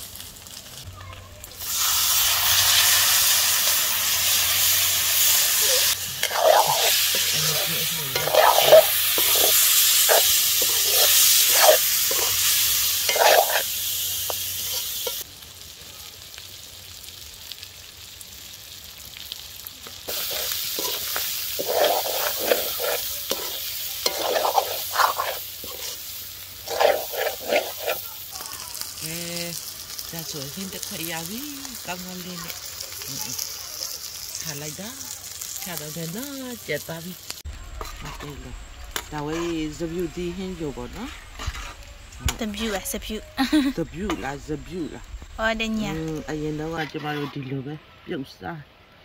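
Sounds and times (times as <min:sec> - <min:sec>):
curry sizzling in a wok: 0:00.0 - 0:49.0
metal spatula scraping a pan: 0:05.2 - 0:15.2, 0:20.1 - 0:28.2, 0:37.8 - 0:39.9, 0:40.5 - 0:43.1, 0:46.5 - 0:47.5.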